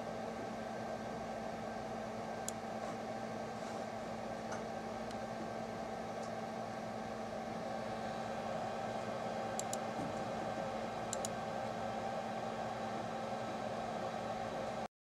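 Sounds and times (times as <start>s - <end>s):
steady low hum: 0.0s - 14.9s
computer mouse clicking: 2.4s - 2.6s, 9.6s - 9.9s, 11.1s - 11.4s.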